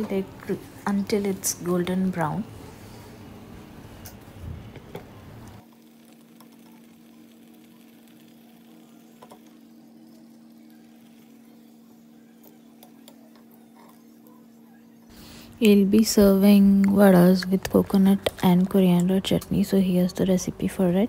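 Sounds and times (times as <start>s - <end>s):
oil bubbling and sizzling: 5.6s - 12.2s.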